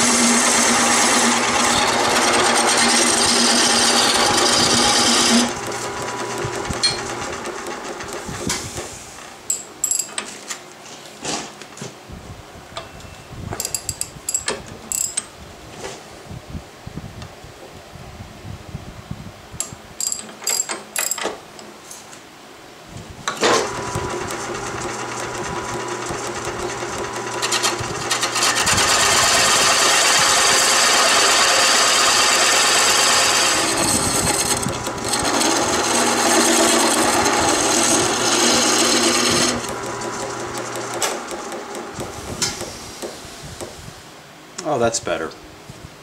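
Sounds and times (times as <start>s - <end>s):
wood lathe humming: 0.0s - 8.4s, 23.6s - 43.8s
hissing scraping of wood: 8.1s - 9.3s, 42.0s - 44.0s.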